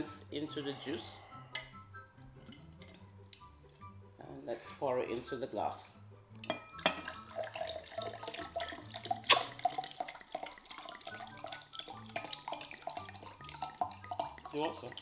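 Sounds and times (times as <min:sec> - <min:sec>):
juice glugging into a glass: 0:06.8 - 0:15.0.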